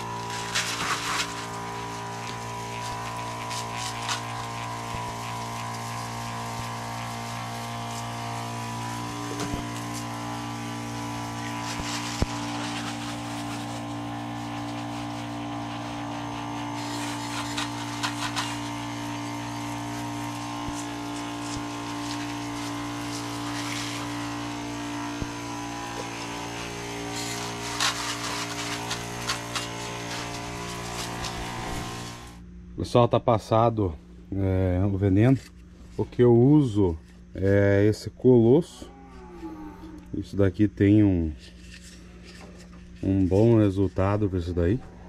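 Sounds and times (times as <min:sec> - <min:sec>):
sprayer lance hissing: 0:00.0 - 0:32.4
electric pump humming: 0:00.0 - 0:45.0.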